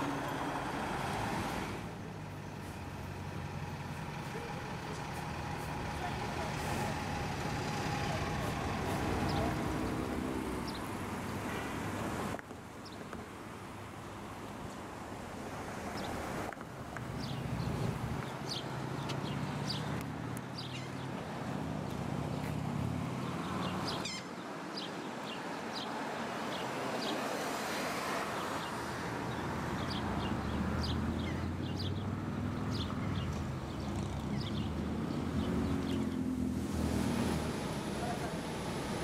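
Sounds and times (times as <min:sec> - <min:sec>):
small birds chirping: 0:17.1 - 0:21.2, 0:28.3 - 0:36.4.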